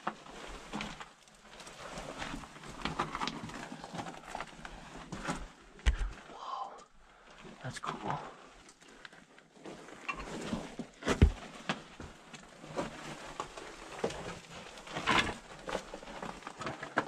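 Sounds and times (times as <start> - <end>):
footsteps crunching on gravel: 11.2 - 11.4.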